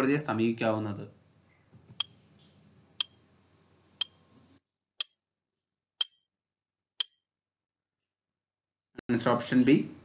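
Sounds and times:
sharp clock ticks: 3.0s - 3.2s, 4.0s - 4.2s, 5.0s - 5.2s, 6.0s - 6.2s, 7.0s - 7.2s.

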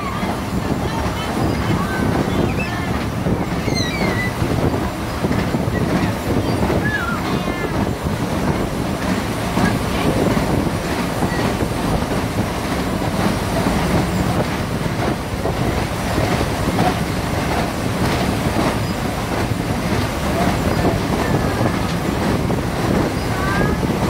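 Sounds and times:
train wheels rumbling on rails: 0.0s - 24.0s
rail-joint clicks: 1.4s - 24.0s
faint wheel squeal: 3.5s - 4.4s.

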